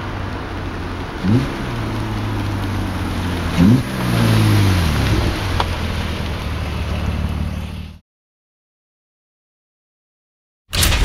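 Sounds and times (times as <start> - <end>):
car engine driving past: 0.0 - 8.0.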